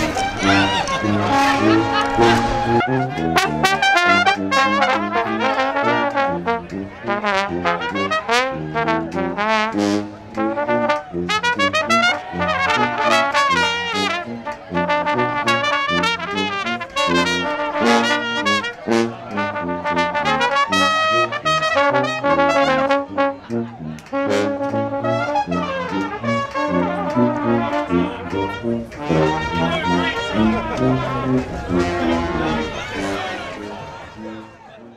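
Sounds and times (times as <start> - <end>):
brass band playing: 0.0 - 34.9
sousaphone bass line: 27.4 - 34.6.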